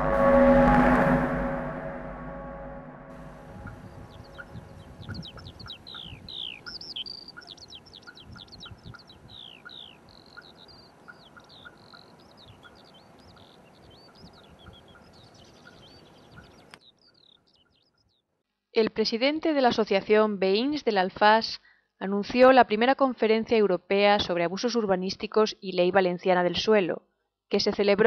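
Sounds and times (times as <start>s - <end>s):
small birds chirping and singing: 3.4s - 18.2s.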